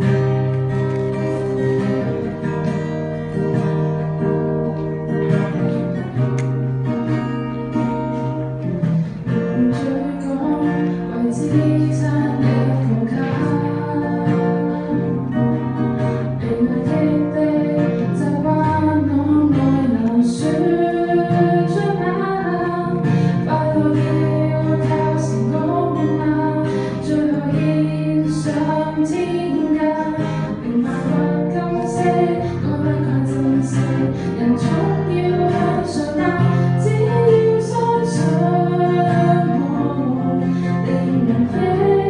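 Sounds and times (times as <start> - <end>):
strummed acoustic guitar: 0.0 - 42.0
woman singing pop ballad: 9.4 - 42.0.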